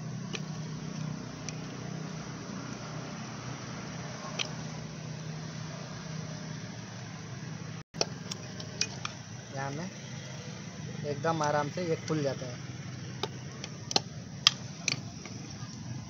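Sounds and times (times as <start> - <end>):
metal tool clicks: 4.3 - 4.6, 13.2 - 15.4.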